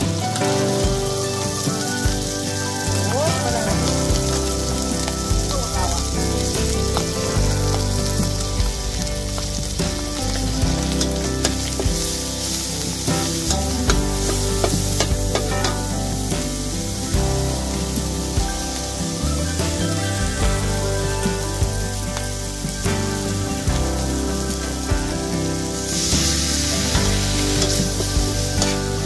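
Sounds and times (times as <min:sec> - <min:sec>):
eggs sizzling in oil: 0:00.0 - 0:29.0
metal spatula scraping wok: 0:25.8 - 0:29.0.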